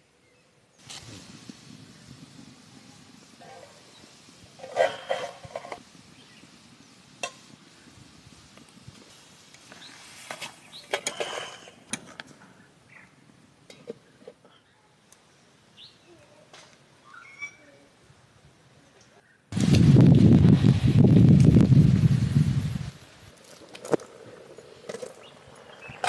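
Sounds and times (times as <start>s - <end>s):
spoon scraping steel pan: 11.0s - 11.8s
faint bird chirps: 17.0s - 17.9s.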